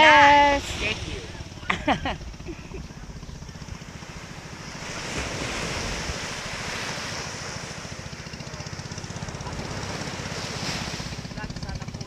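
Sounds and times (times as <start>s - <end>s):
wind on microphone: 0.0s - 8.0s
low steady rumble: 0.0s - 12.0s
surf washing onto beach: 3.8s - 11.8s.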